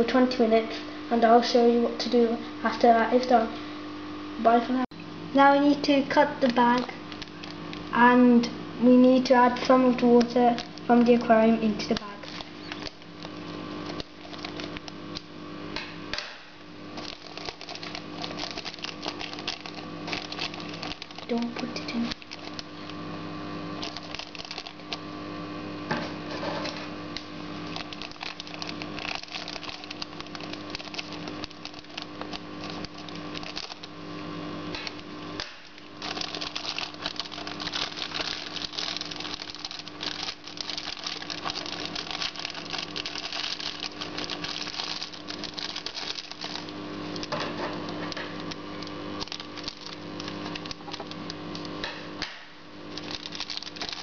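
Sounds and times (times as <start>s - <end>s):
plastic bag crinkling: 6.3s - 8.0s, 9.5s - 15.3s, 16.9s - 23.0s, 23.7s - 25.0s, 27.6s - 34.0s, 34.8s - 51.8s, 52.9s - 54.0s.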